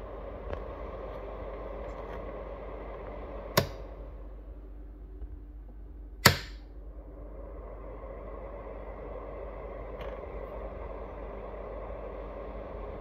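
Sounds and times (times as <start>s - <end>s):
cooler fan humming: 0.0s - 13.0s
switch clicks: 3.6s - 3.8s, 6.2s - 6.6s.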